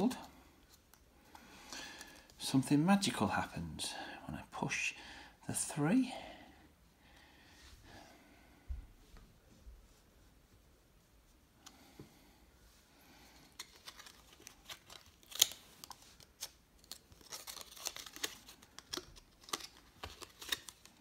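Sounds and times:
card stock rustling: 13.5s - 21.0s.

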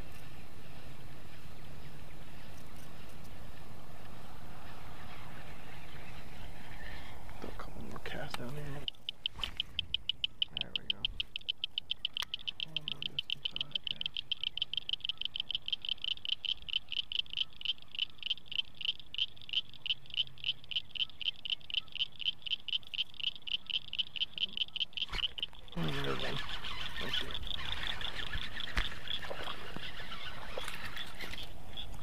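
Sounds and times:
frog calling in high clicks: 8.3s - 32.0s.

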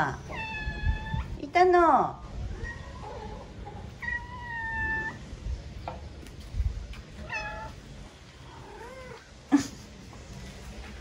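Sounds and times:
cat meowing: 0.2s - 1.4s, 4.0s - 5.2s, 7.2s - 7.8s.

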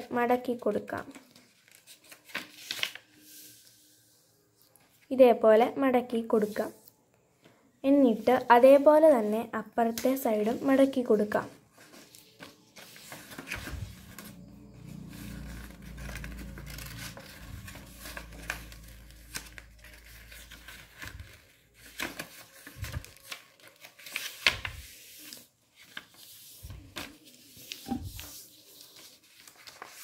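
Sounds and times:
paper rustling on tiled floor: 1.0s - 5.1s, 9.8s - 30.0s.

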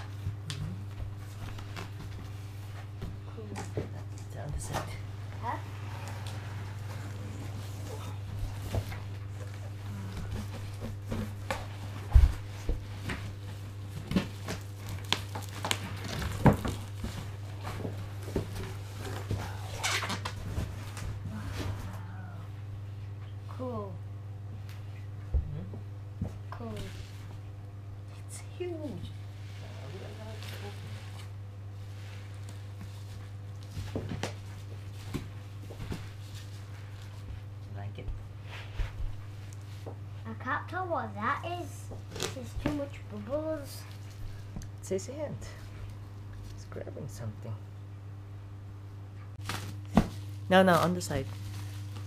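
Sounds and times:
steady low hum: 0.0s - 52.0s
bubble wrap crinkling: 13.4s - 22.2s, 29.3s - 37.3s, 49.4s - 52.0s
plastic crinkling and knocking: 13.9s - 19.4s.

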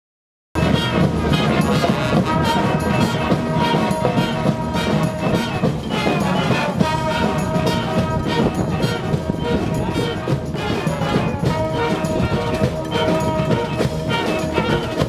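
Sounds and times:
marching brass band playing: 0.6s - 15.0s.

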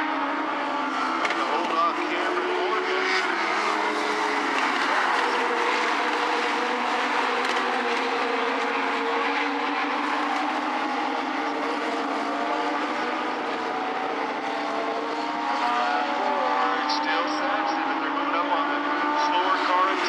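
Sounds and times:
race car engines running: 0.0s - 20.0s.

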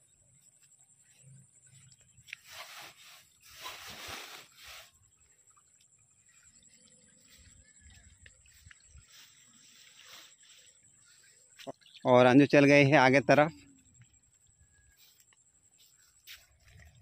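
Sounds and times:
grass and weeds rustling: 0.4s - 11.7s.

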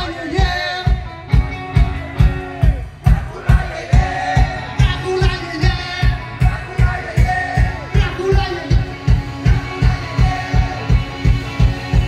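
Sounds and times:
drum kit steady beat: 0.0s - 12.0s
electric guitars ringing: 4.5s - 12.0s.

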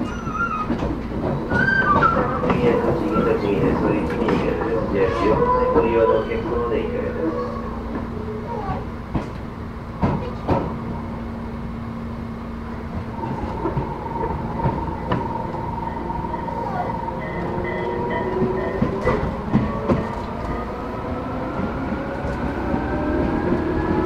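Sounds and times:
wheels clacking over rail joints: 0.0s - 5.6s, 12.8s - 20.6s
electric train whine: 0.0s - 10.0s, 10.7s - 24.0s.

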